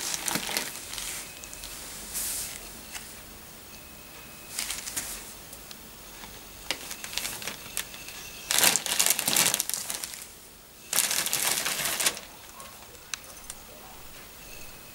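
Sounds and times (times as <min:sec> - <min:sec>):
plastic bag crinkling: 0:00.0 - 0:01.9, 0:04.5 - 0:05.2, 0:06.1 - 0:13.7.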